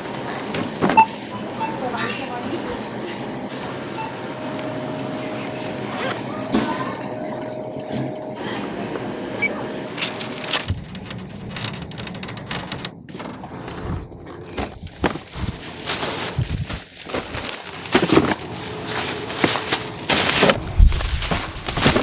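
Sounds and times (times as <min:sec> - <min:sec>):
plastic bags rustling: 0:10.0 - 0:22.0.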